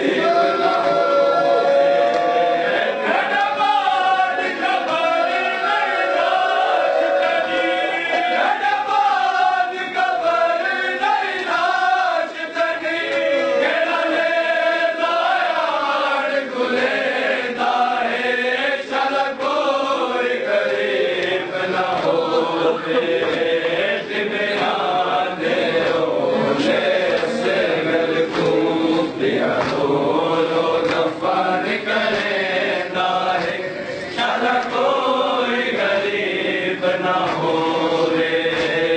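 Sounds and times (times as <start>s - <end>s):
men chanting a lament: 0.0s - 38.9s.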